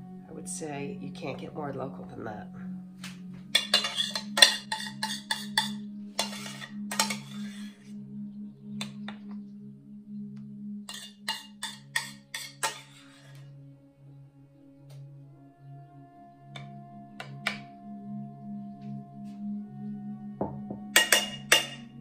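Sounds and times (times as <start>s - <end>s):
background music low tones: 0.0s - 22.0s
metal spoon scraping metal bowl: 3.6s - 7.9s, 10.9s - 13.4s, 21.0s - 21.8s.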